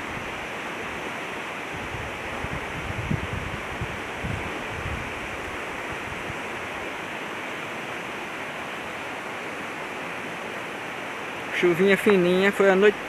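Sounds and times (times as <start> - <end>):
floodwater rushing: 0.0 - 13.0
wind buffeting microphone: 1.7 - 7.0.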